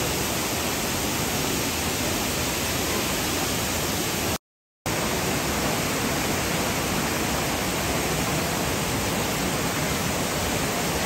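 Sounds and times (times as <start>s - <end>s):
rushing water: 0.0s - 11.0s.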